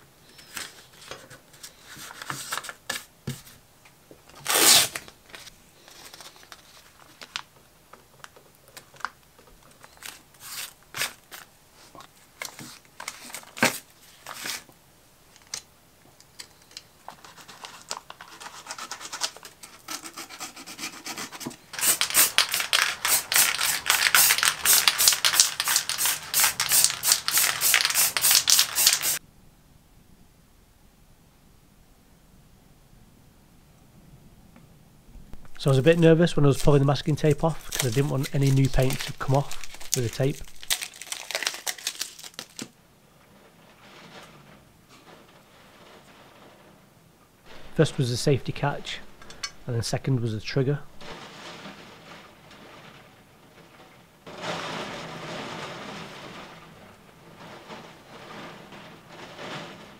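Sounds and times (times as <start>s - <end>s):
masking tape crinkling and tearing: 4.3s - 15.7s, 16.4s - 29.2s, 35.4s - 42.8s
aerosol spray paint hissing: 21.8s - 29.2s.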